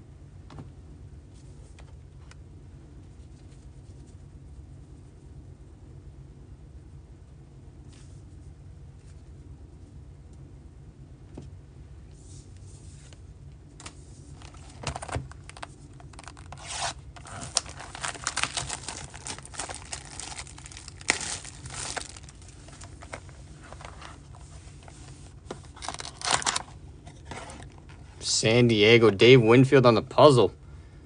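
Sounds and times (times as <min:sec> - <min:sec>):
plastic shrink wrap crinkling: 0:14.3 - 0:26.8.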